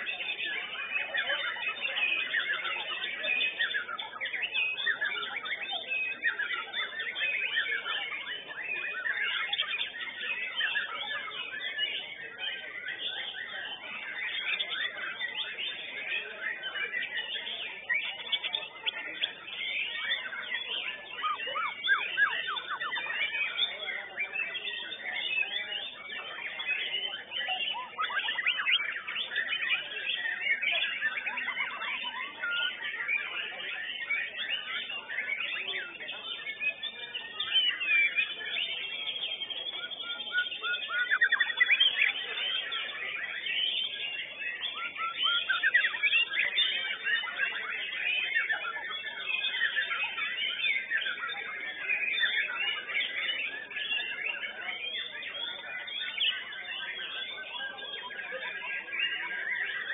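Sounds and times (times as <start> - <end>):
birds singing whistles and trills: 0.0 - 59.9.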